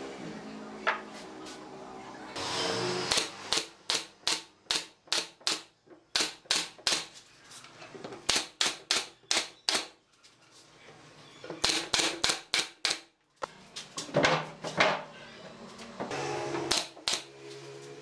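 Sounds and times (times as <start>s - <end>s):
nail gun firing into wood: 8.2s - 9.9s, 11.6s - 13.1s, 16.7s - 17.3s.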